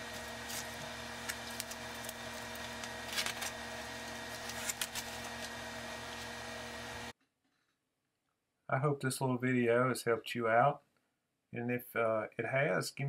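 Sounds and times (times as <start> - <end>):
vinyl sheet rustling and crackling: 0.0 - 7.1.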